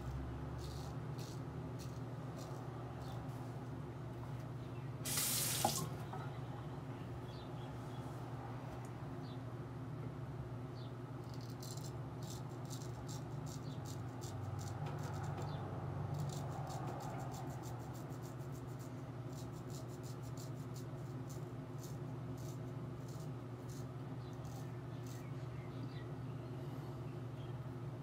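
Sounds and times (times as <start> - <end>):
razor scraping stubble: 0.1 - 3.3, 11.2 - 25.3.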